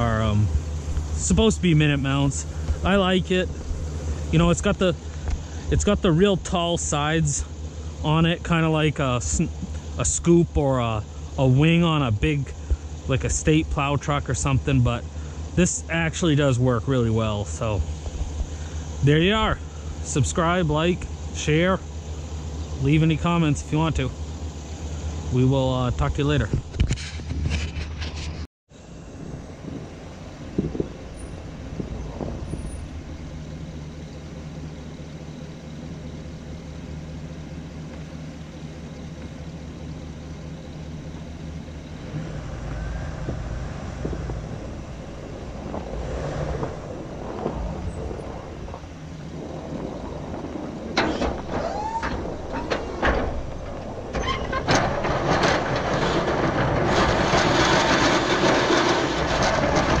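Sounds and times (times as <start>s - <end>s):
truck engine idling: 0.0s - 60.0s
plow blade pushing through snow: 29.4s - 60.0s.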